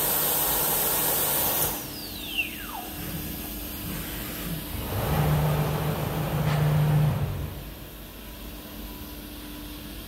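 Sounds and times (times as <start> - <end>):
machine hum: 1.4 - 9.2.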